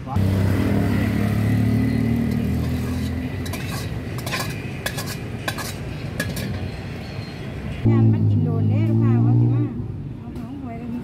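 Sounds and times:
metal spatula scraping in a wok: 0:02.2 - 0:06.9.

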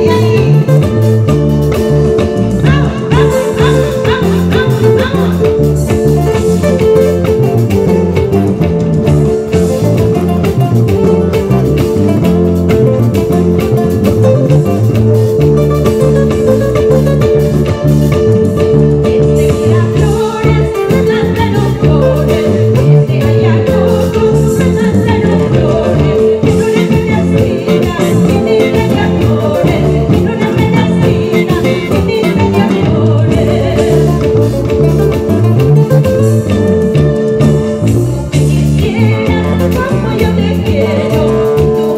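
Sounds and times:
woman singing into a microphone: 0:00.0 - 0:08.2, 0:18.6 - 0:35.3, 0:38.3 - 0:41.9
acoustic guitars playing: 0:00.0 - 0:41.9
bass line: 0:00.0 - 0:41.9.

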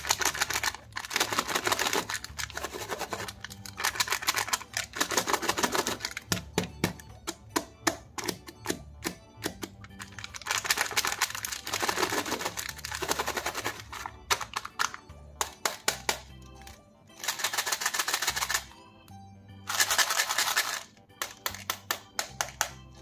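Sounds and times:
candy wrapper crinkling: 0:00.0 - 0:06.5, 0:09.8 - 0:18.7, 0:19.7 - 0:21.7
background music: 0:00.0 - 0:23.0.

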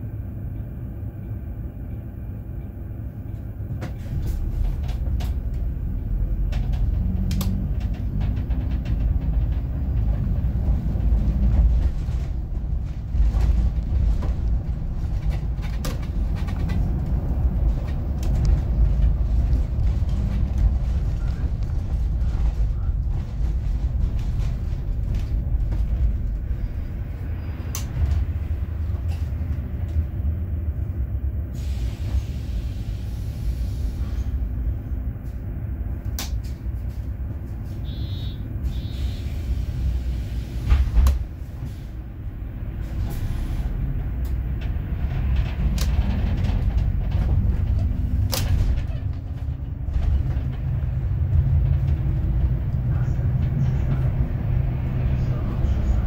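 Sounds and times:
bus engine and road rumble: 0:00.0 - 0:56.0
short beeps: 0:37.9 - 0:38.9.

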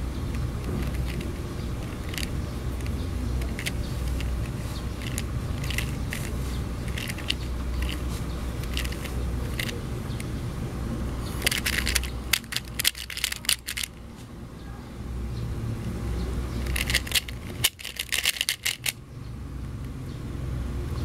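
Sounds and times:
steady low hum: 0:00.0 - 0:19.8
puzzle cube layers clicking: 0:00.6 - 0:08.0, 0:08.6 - 0:09.8, 0:11.4 - 0:13.9, 0:16.6 - 0:19.0.

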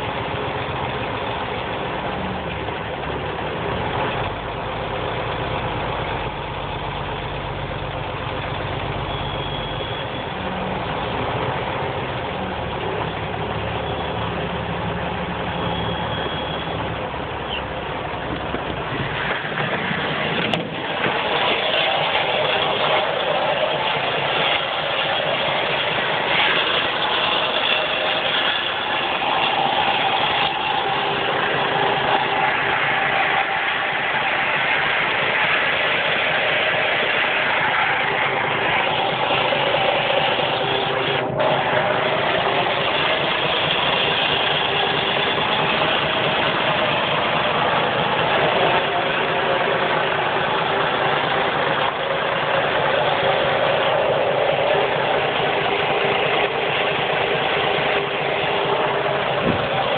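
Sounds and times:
tractor engine idling: 0:00.0 - 0:59.9
even rushing noise: 0:17.9 - 0:59.9.

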